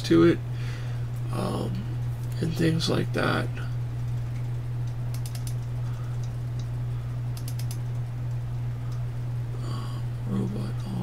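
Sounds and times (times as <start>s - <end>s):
low electrical hum: 0.0s - 11.0s
keyboard typing: 4.0s - 6.7s, 7.4s - 8.1s.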